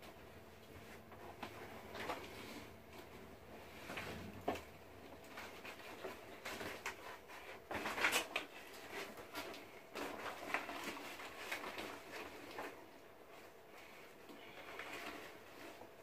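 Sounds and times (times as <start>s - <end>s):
plastic bag rustling: 0.7s - 16.0s.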